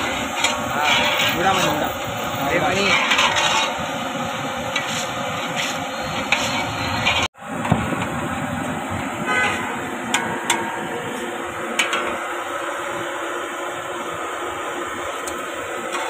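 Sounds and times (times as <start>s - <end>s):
skimmer rattle: 2.6s - 4.0s.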